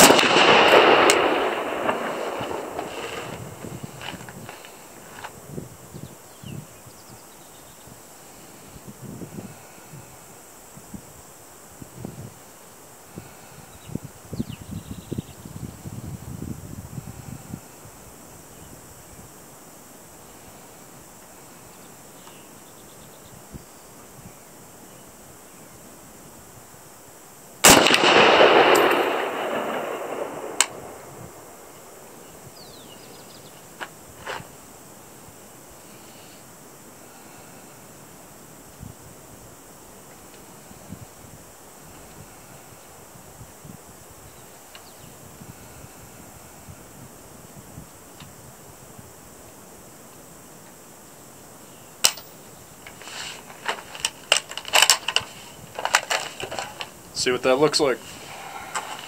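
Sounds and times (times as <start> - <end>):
rifle shot with echo: 0.0 - 3.6, 27.6 - 32.1
sharp metallic clink: 27.7 - 29.4, 52.0 - 52.4
metallic clicks of rifle handling: 52.0 - 56.9.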